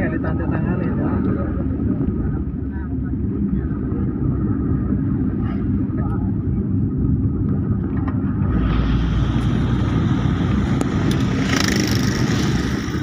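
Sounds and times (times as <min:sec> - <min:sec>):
vehicle engine and tyre rumble: 0:00.0 - 0:13.0
motorcycles passing hiss: 0:08.5 - 0:13.0.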